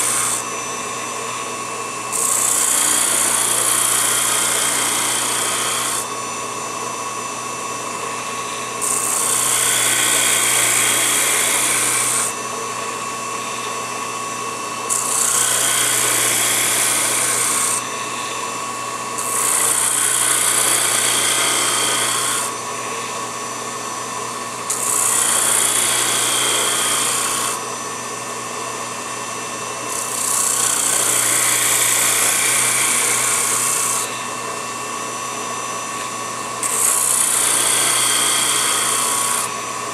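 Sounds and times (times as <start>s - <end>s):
hissing grind of sanding roller: 0.0s - 0.5s, 2.1s - 6.1s, 8.2s - 12.4s, 14.9s - 18.5s, 19.2s - 23.3s, 24.7s - 27.6s, 30.0s - 34.3s, 36.6s - 39.5s
lathe motor whining: 0.0s - 39.9s.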